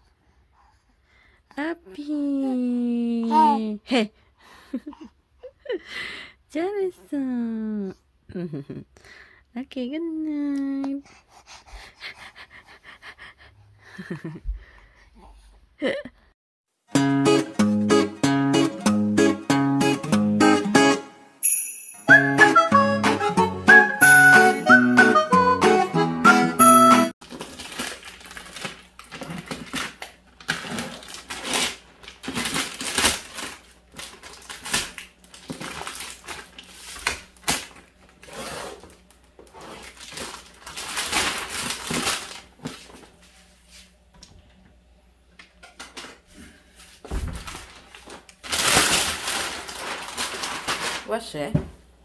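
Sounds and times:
plastic bag rustling: 0:27.2 - 0:43.2, 0:46.9 - 0:51.5.

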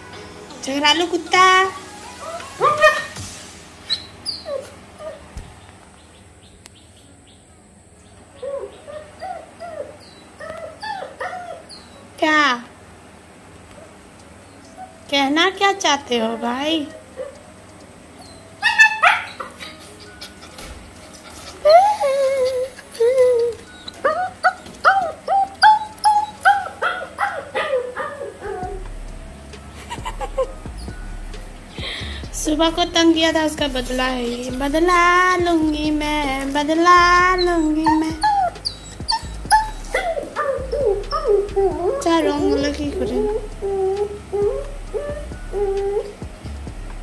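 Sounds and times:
puppy whimpering: 0:03.8 - 0:05.4, 0:08.4 - 0:12.1, 0:14.6 - 0:15.1, 0:16.8 - 0:17.5, 0:18.1 - 0:28.9, 0:33.8 - 0:46.3.

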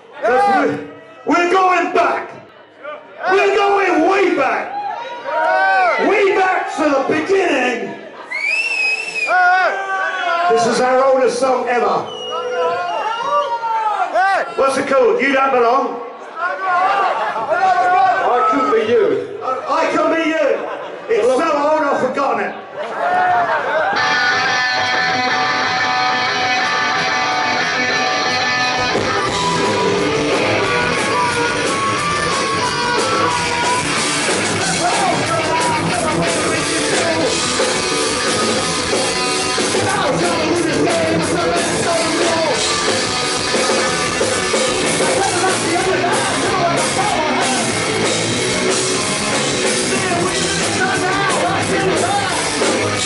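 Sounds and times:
drums and bass: 0:23.9 - 0:53.0
electric guitar: 0:23.9 - 0:53.0
man singing: 0:34.6 - 0:44.0, 0:45.0 - 0:47.9, 0:49.7 - 0:52.6.

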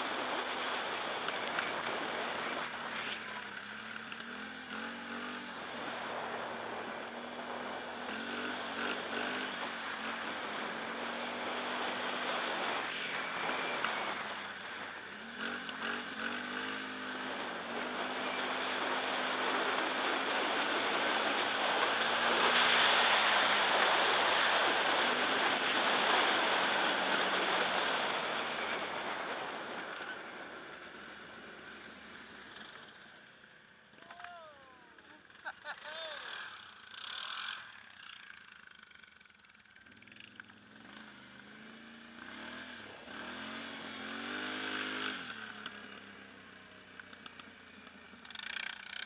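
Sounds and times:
quad bike engine revving: 0:00.0 - 0:33.3, 0:33.9 - 0:49.0.

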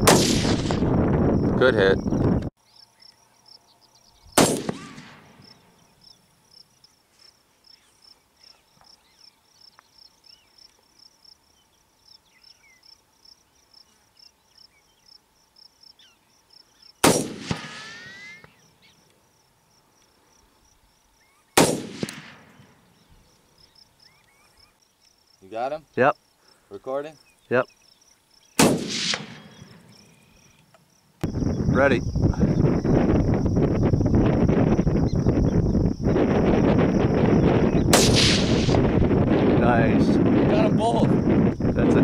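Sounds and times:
rifle shots with echo: 0:00.0 - 0:01.0, 0:04.4 - 0:05.7, 0:17.0 - 0:18.0, 0:21.6 - 0:22.8, 0:28.6 - 0:30.1, 0:37.9 - 0:38.9
insects chirping: 0:00.0 - 0:42.0.

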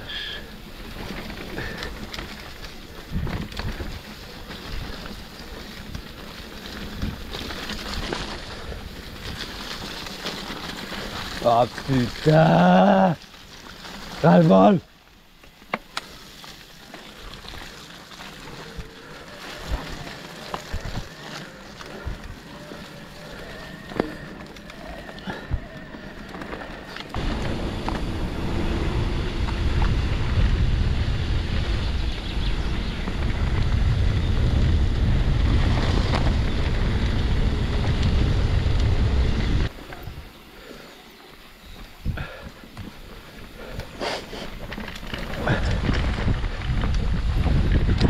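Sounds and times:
bike tyres sloshing through mud: 0:00.0 - 0:32.0
wind buffeting microphone: 0:00.8 - 0:12.4, 0:17.2 - 0:40.4, 0:41.6 - 0:48.0.

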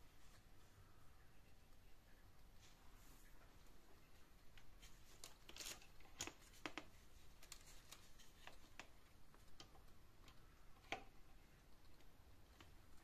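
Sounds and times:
faint clicks: 0:04.3 - 0:13.0.

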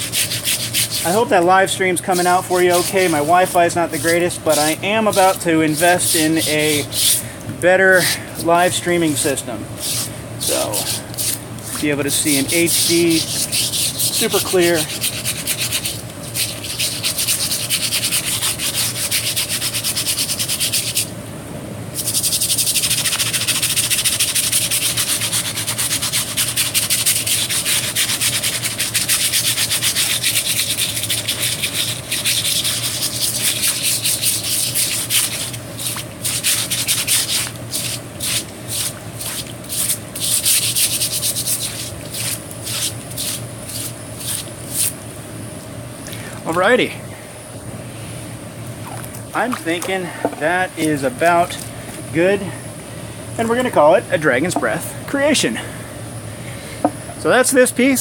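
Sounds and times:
wire brush scrubbing wood: 0:00.0 - 0:07.2, 0:08.0 - 0:21.1, 0:22.0 - 0:45.0, 0:49.4 - 0:51.6.

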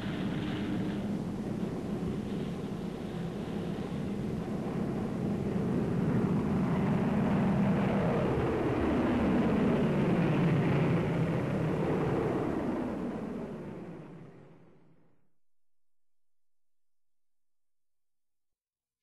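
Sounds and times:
propeller plane engines droning: 0:00.0 - 0:14.7.

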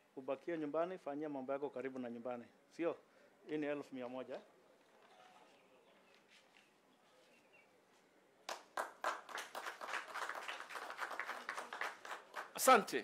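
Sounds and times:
people clapping: 0:08.5 - 0:13.0.

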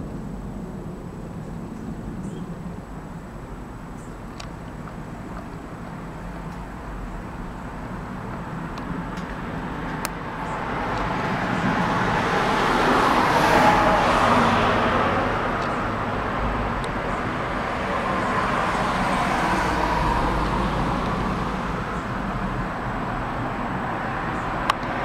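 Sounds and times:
road traffic passing: 0:00.0 - 0:25.0.

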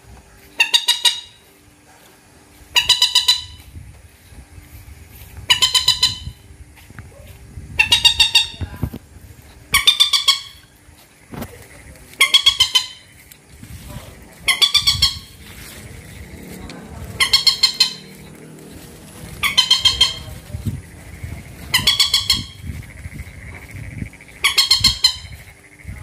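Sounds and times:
moorhen calling: 0:00.6 - 0:01.4, 0:02.7 - 0:03.7, 0:05.5 - 0:06.4, 0:09.7 - 0:13.3, 0:13.9 - 0:26.0.

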